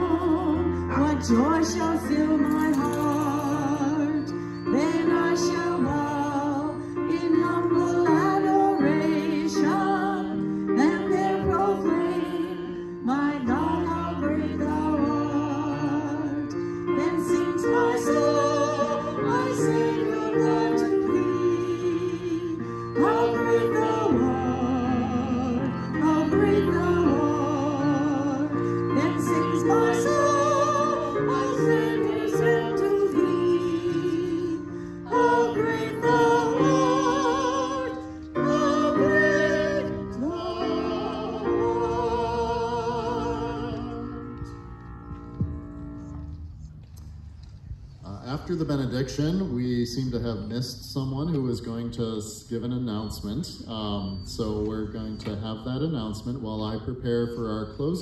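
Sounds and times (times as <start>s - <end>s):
choir singing with vibrato: 0.0s - 44.6s
electronic keyboard low notes: 0.0s - 58.0s.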